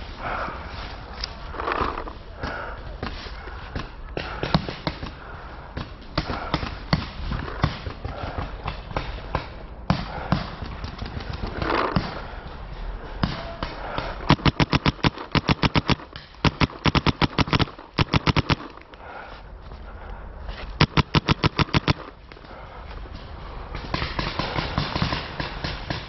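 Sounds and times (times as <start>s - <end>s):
paintball marker rapid firing: 6.2s - 12.4s, 13.2s - 18.8s, 20.8s - 22.2s, 23.8s - 26.0s.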